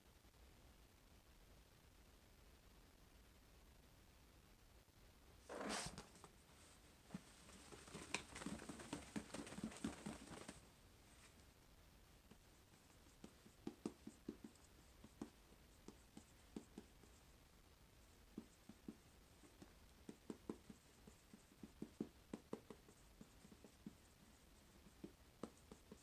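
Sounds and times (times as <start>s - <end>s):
pen writing on a pad: 13.0s - 17.2s, 18.4s - 26.0s.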